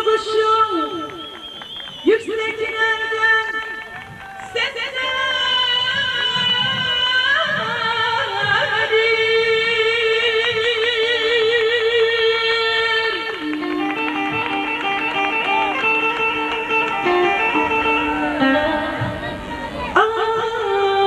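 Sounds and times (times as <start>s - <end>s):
live band music: 13.2s - 20.0s
plucked string notes: 13.4s - 21.0s.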